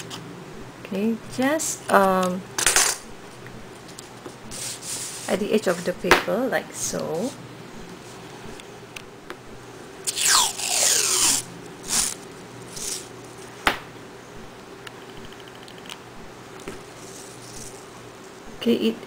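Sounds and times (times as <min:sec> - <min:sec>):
tape ripping off roll: 0:10.1 - 0:13.1.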